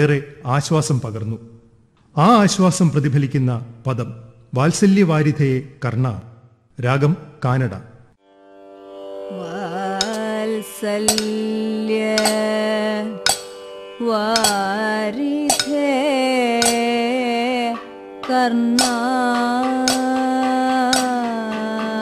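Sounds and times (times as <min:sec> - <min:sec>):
cymbals striking: 0:10.0 - 0:10.4, 0:11.0 - 0:12.6, 0:13.2 - 0:13.7, 0:14.4 - 0:14.8, 0:15.5 - 0:17.0, 0:17.7 - 0:22.0.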